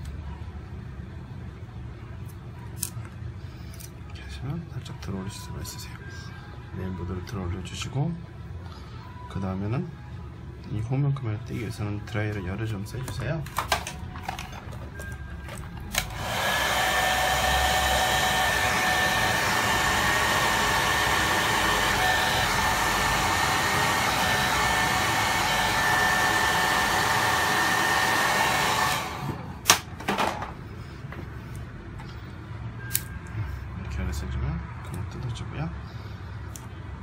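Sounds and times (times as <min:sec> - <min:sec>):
hot-air dryer blowing: 0:15.9 - 0:29.9.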